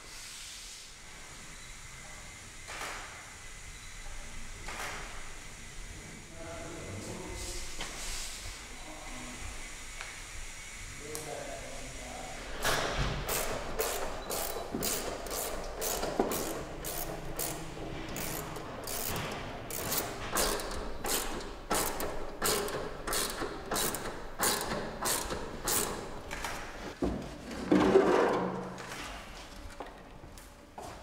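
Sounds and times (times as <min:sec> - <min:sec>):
ratchet tool clicking: 0:13.3 - 0:26.5.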